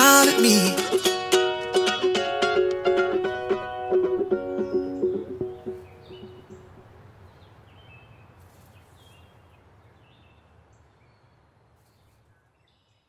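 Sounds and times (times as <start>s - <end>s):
bird chirps: 4.3s - 13.0s.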